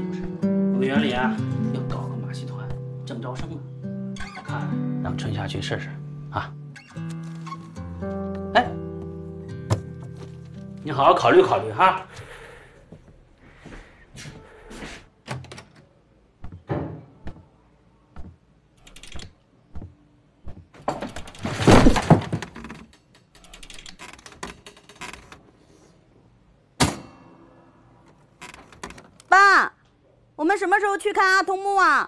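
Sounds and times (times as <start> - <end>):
metal leg braces thumping: 9.6 - 10.2.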